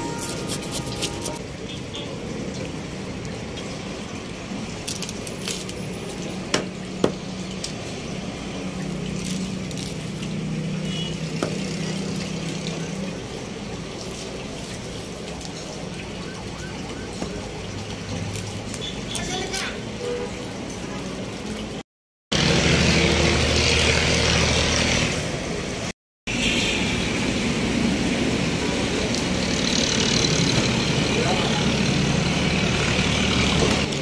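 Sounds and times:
knife scraping fish scales: 0.0s - 1.4s, 8.8s - 10.4s.

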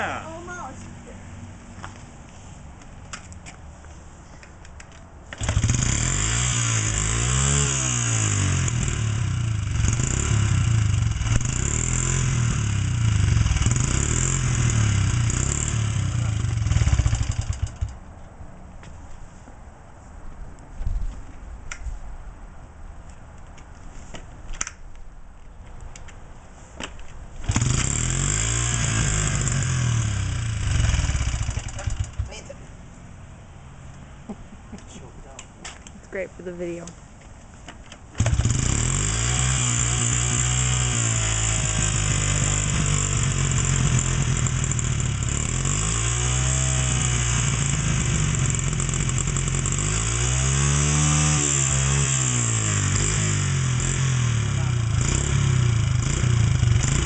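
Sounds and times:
motorcycle engine running: 5.4s - 18.0s, 27.4s - 32.5s, 38.2s - 57.0s.

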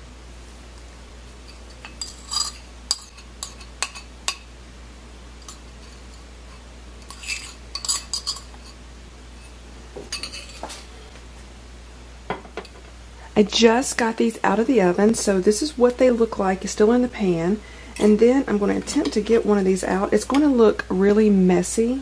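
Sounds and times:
metal spoon clinking on ceramic: 7.0s - 8.5s, 10.1s - 10.6s.

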